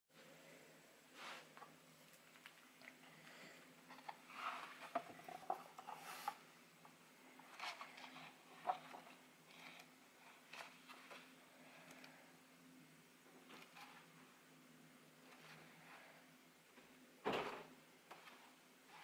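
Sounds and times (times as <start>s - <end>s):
faint steady hum: 0.2s - 19.0s
book pages turning: 3.9s - 6.5s.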